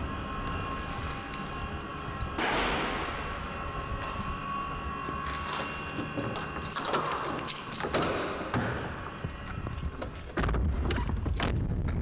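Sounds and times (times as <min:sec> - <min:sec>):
steady low hum: 0:00.0 - 0:12.0
keys jangling in car door lock: 0:05.8 - 0:08.1.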